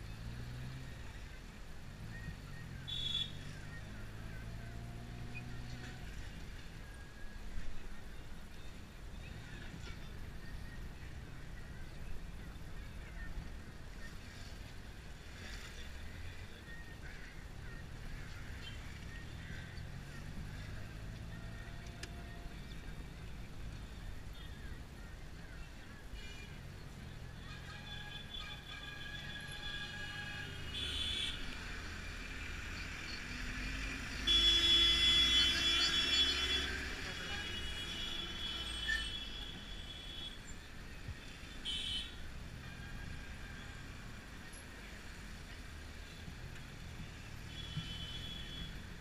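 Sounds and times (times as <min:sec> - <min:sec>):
car engine and road rumble: 0:00.0 - 0:49.0
faint street sounds: 0:00.0 - 0:49.0
car horn blast: 0:34.2 - 0:39.5.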